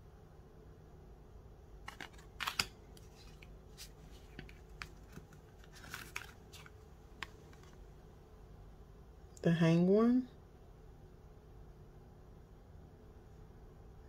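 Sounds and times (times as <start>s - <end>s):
cards clicking and sliding: 1.9s - 7.8s.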